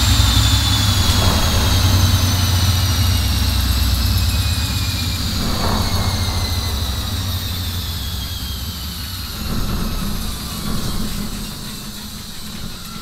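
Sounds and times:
washing machine drum spinning down: 0.0s - 13.0s.

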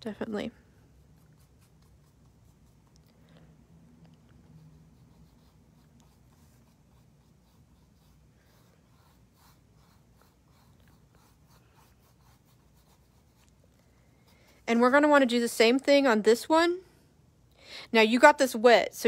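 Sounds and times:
paintbrush strokes on canvas: 0.9s - 2.9s, 4.4s - 15.2s.

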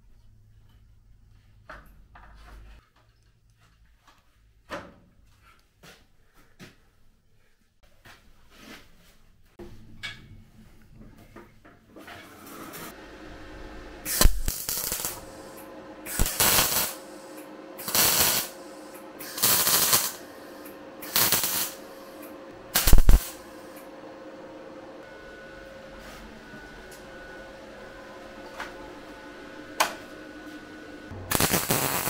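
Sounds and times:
faint steady hum: 12.9s - 32.0s
pressurised spray hissing: 14.0s - 23.8s.

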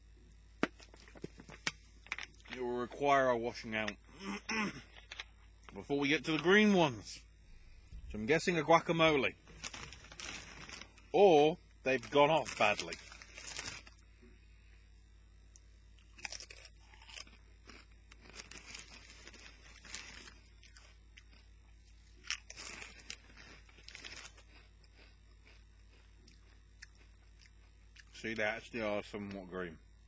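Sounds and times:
chips crunching in foil bag: 8.2s - 14.0s, 16.1s - 21.3s, 22.2s - 25.6s.

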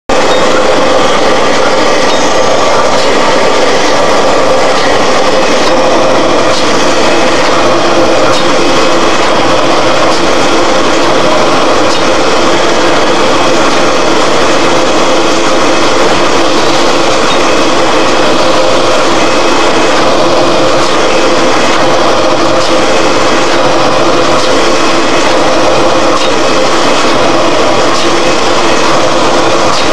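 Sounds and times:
printing machine humming: 0.1s - 29.9s.

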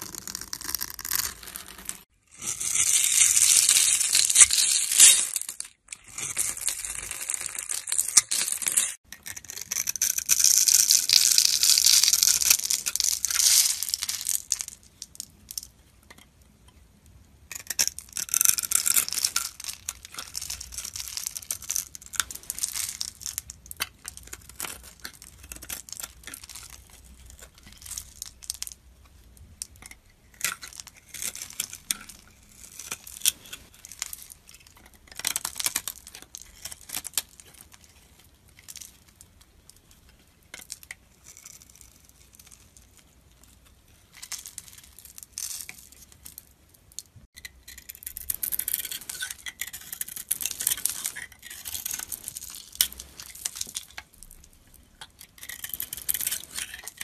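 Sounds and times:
knife cutting bar soap crunching: 47.7s - 57.0s.

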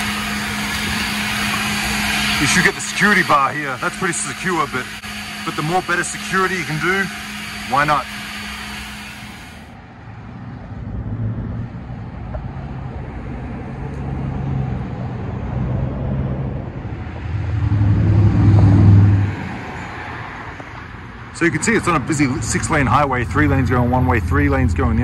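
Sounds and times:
highway traffic rumble: 0.0s - 8.2s, 9.6s - 25.0s
vehicle passing close: 10.7s - 21.8s.

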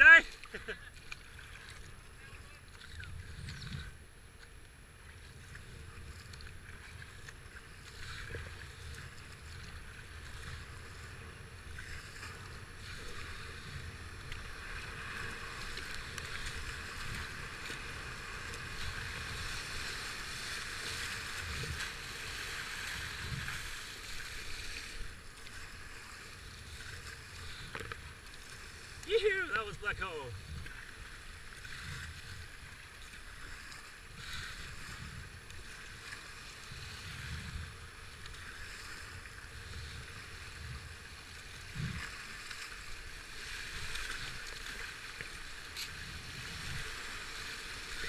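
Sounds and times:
wind rumble on microphone: 2.0s - 4.1s, 5.0s - 28.1s, 30.3s - 48.0s
river water rushing: 14.5s - 27.2s, 28.4s - 31.8s.

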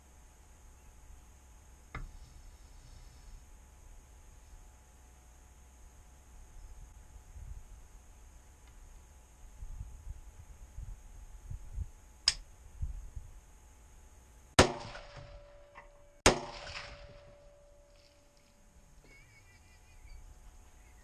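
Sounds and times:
sharp click: 12.2s - 12.5s.

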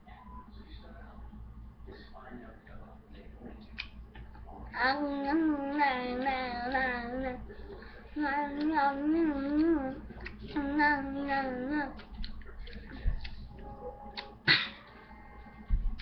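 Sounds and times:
child singing wordless tune: 4.8s - 7.5s, 8.2s - 12.1s.

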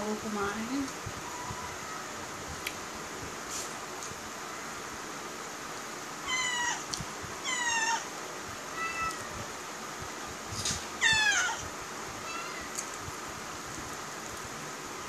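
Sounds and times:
cat meowing: 6.2s - 8.1s, 8.7s - 9.5s, 11.0s - 11.6s, 12.2s - 12.8s.

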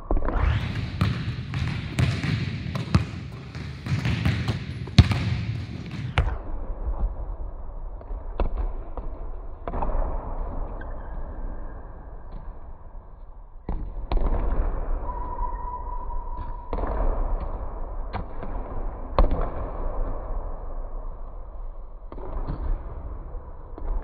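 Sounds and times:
basketballs bouncing on hardwood: 1.0s - 6.3s.

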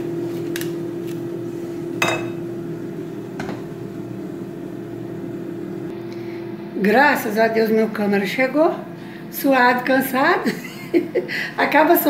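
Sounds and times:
kitchen appliance humming: 0.0s - 12.0s
kitchenware clinking and knocking: 2.0s - 2.4s.

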